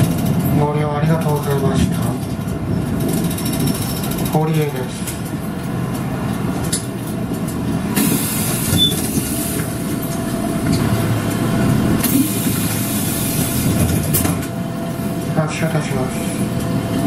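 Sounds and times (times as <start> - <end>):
bus diesel engine idling: 0.0 - 17.0
compressed air hiss: 8.0 - 9.6.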